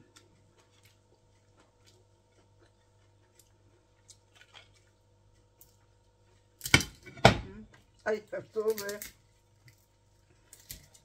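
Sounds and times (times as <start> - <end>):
eating by hand: 0.0 - 6.7.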